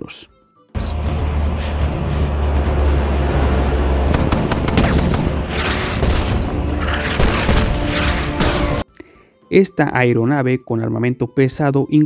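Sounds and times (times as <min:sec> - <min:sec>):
aircraft engines droning: 0:00.8 - 0:08.3
rushing booming blasts: 0:00.9 - 0:08.8
rapid gunshots: 0:04.1 - 0:08.8.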